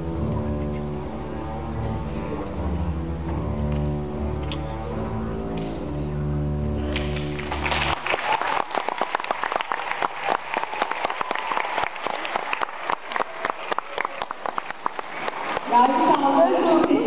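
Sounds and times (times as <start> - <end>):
orchestra holding a low chord: 0.0 - 8.0
audience applause: 6.9 - 17.0.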